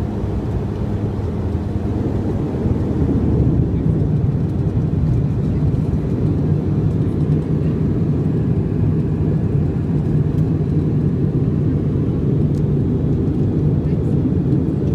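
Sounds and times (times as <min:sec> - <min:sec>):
aircraft cabin engine drone: 0:00.0 - 0:14.9.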